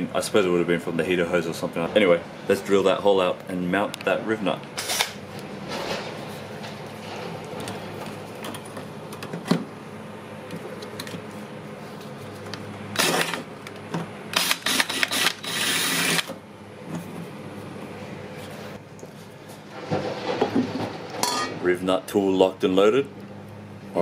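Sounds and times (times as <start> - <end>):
loud drill bursts: 4.8 - 5.2, 13.0 - 13.4, 14.3 - 16.3
cordless drill whirring: 13.0 - 13.4, 14.4 - 16.3.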